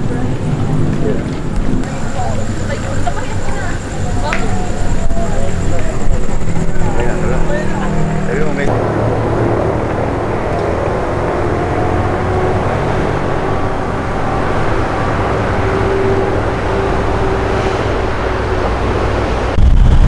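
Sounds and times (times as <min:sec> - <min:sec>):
faint murmur of people: 0:00.0 - 0:08.9
low rumble of traffic: 0:00.0 - 0:20.0.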